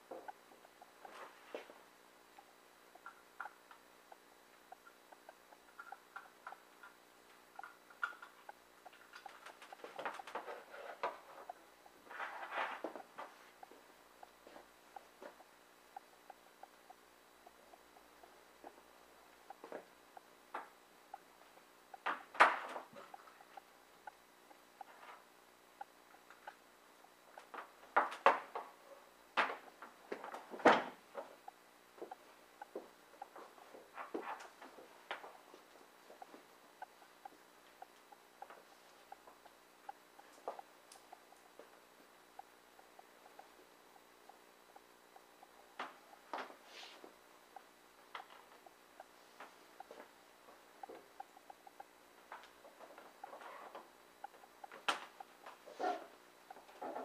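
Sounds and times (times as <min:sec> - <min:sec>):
faint ticking: 0:00.0 - 0:57.0.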